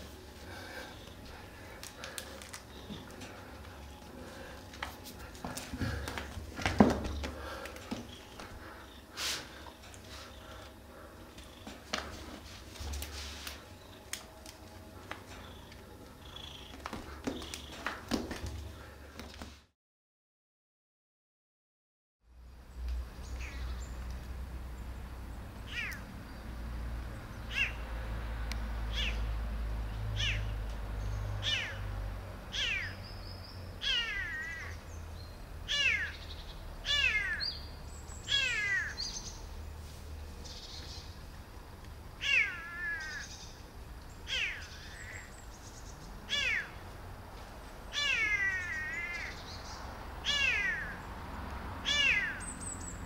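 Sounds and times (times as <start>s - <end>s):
kitten mewing: 25.7s - 26.0s, 30.2s - 30.4s, 31.4s - 31.8s, 32.5s - 32.9s, 33.8s - 34.7s, 35.7s - 36.2s, 36.9s - 37.4s, 38.3s - 39.0s, 42.2s - 43.2s, 44.3s - 45.2s, 46.3s - 46.8s, 47.9s - 49.4s, 50.2s - 50.9s, 51.8s - 52.4s.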